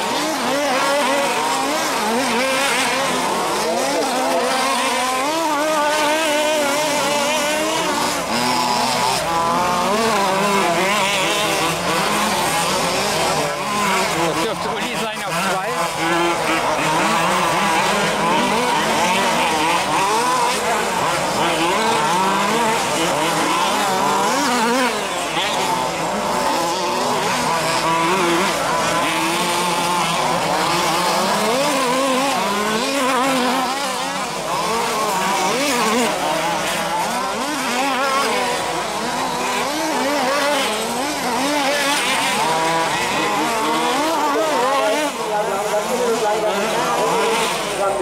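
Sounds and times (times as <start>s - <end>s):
small two-stroke engines revving: 0.0s - 48.0s.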